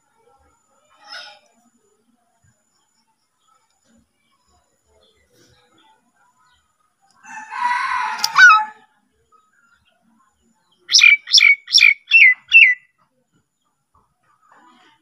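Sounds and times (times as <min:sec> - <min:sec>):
myna harsh rasping call: 0:08.2 - 0:08.8, 0:10.9 - 0:12.8.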